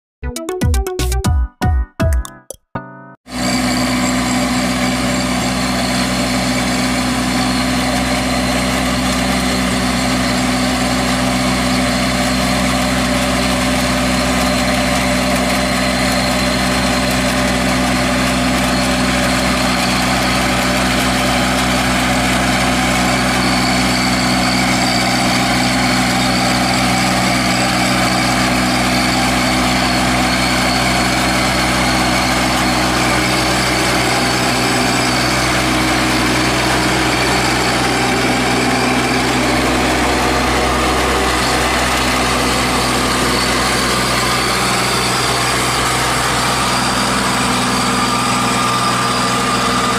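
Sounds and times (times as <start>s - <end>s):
tractor diesel engine running: 3.3s - 49.9s.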